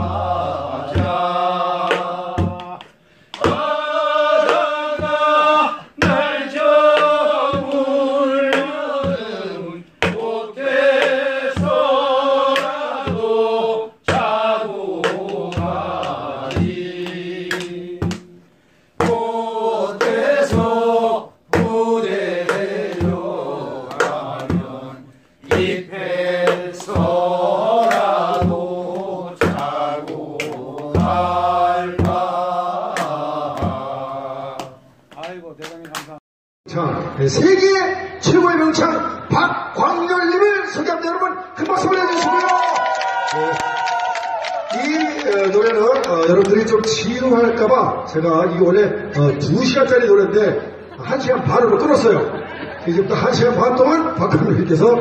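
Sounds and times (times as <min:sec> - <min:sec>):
drum struck sharply: 0:00.0 - 0:02.8, 0:10.9 - 0:11.9, 0:12.5 - 0:13.4, 0:15.0 - 0:19.3, 0:20.0 - 0:20.8, 0:21.5 - 0:21.8, 0:22.4 - 0:34.0
men singing chant-like folk song: 0:00.0 - 0:18.4, 0:19.0 - 0:34.8.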